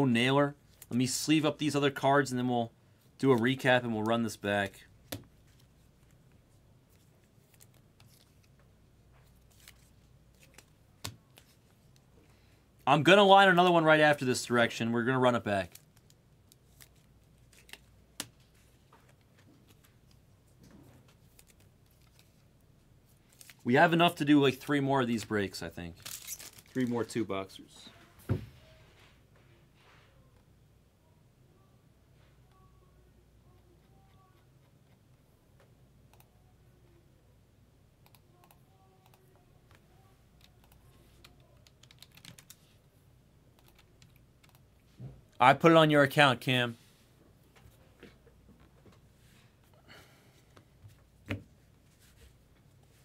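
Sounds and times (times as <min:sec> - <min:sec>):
typing on computer keyboard: 0:40.4 - 0:42.6, 0:43.6 - 0:44.6.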